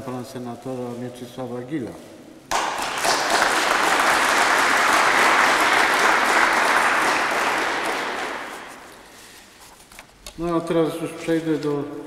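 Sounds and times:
audience applauding: 2.5s - 9.2s.

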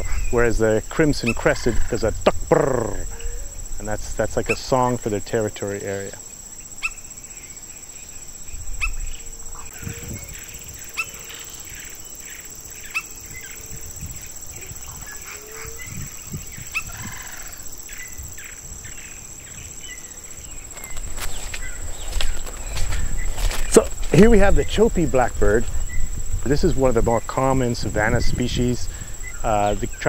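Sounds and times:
high-pitched insect drone: 0.0s - 30.0s
sharp bird calls: 6.6s - 24.8s.

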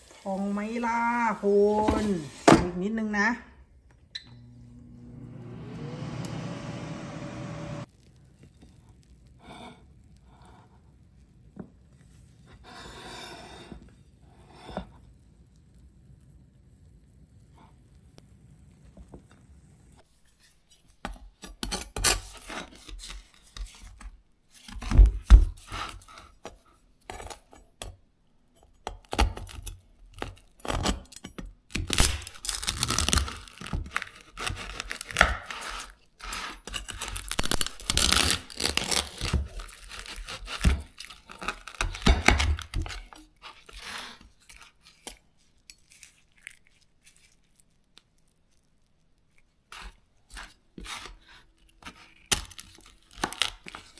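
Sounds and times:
knife crunching through crackling: 31.7s - 48.7s, 49.3s - 53.9s.

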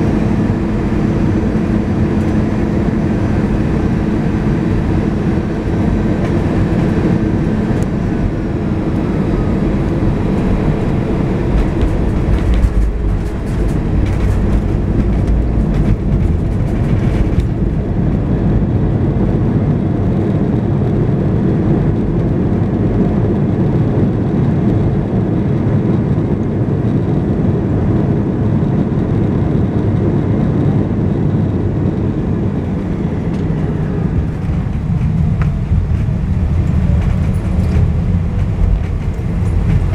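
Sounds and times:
engine and landing gear rumble: 0.0s - 39.9s
thumps and rattles of wheels: 10.3s - 18.3s, 32.6s - 39.9s.

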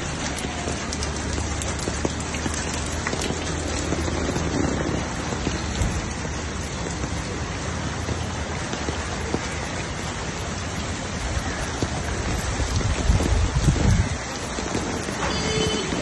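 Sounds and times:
heavy rain pouring on street: 0.0s - 16.0s.

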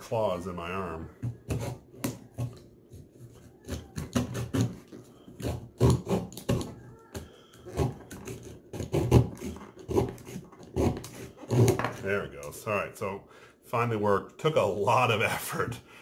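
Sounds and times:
hand saw rasping through branch: 7.7s - 12.0s.

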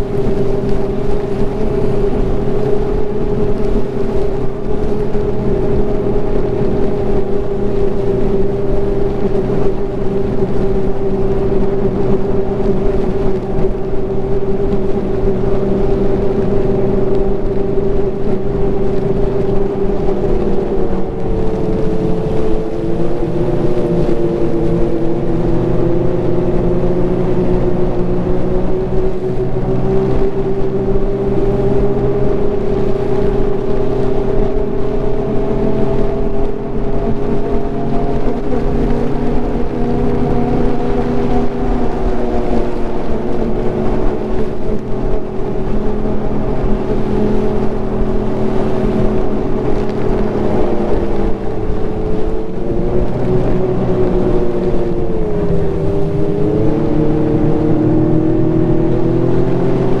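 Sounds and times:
snowmobile engine running: 0.0s - 60.0s.

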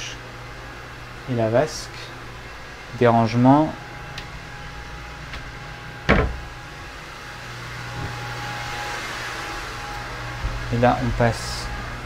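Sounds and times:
ventilation hum: 0.0s - 12.0s
cupboard door knocking shut: 6.1s - 6.5s.

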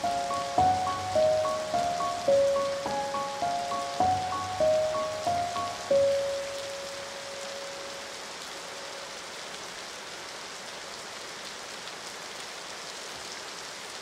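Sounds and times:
held musical note: 0.0s - 8.0s
rain hissing on a surface: 0.0s - 14.0s.

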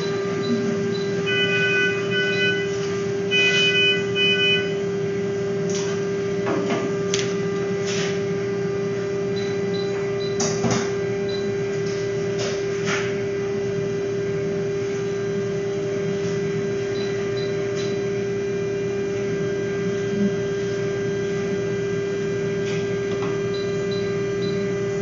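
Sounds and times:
patient monitor alarm beeps: 0.0s - 4.9s, 9.4s - 10.4s, 23.5s - 24.7s
steady electrical hum: 0.0s - 25.0s.

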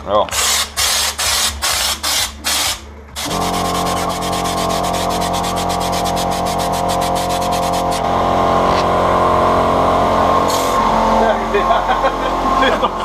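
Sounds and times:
pulsing mechanical hum: 0.0s - 13.0s
spray gun hissing: 0.4s - 8.0s.

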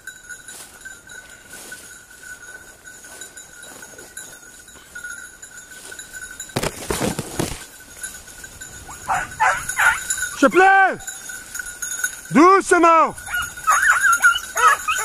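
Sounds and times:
faint high ringing: 0.0s - 15.0s
undergrowth brushing and crackling: 5.8s - 10.3s
distant hounds baying: 8.7s - 11.3s, 13.2s - 15.0s.

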